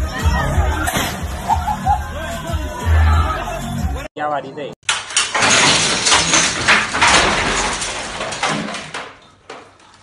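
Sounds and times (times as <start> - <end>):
stepladder crashing onto tiled floor: 4.8 - 9.8
clatter of falling objects: 4.9 - 10.0.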